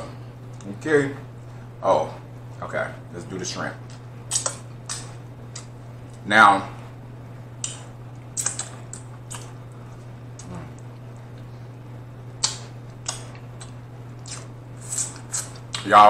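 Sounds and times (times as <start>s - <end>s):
low electrical hum: 0.0s - 16.0s
wet lip smacks: 4.3s - 5.7s, 7.6s - 9.6s, 12.4s - 15.8s
mouth sucking and licking: 12.4s - 15.8s.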